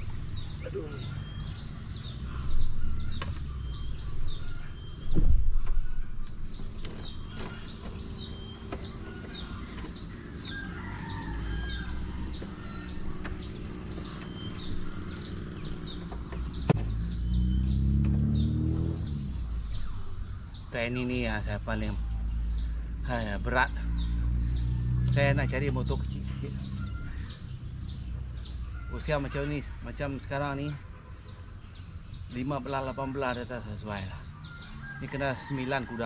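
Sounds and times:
low hum rising in pitch: 0.0 - 20.7
bird chirping: 0.0 - 36.0
low outdoor rumble: 0.0 - 36.0
outboard motor knocks: 5.0 - 10.6, 12.0 - 17.1.

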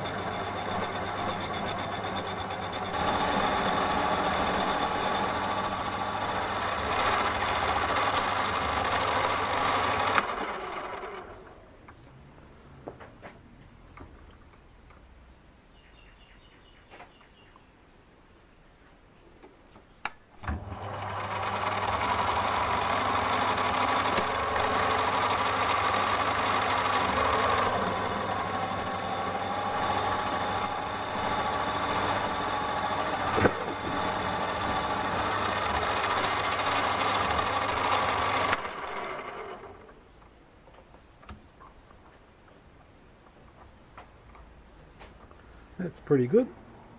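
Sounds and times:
lathe motor whining: 0.0 - 11.6, 20.4 - 40.0.

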